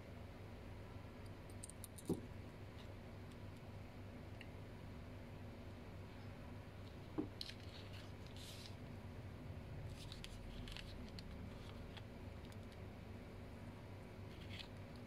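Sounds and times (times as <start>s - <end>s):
small plastic parts clicking: 1.5s - 2.2s.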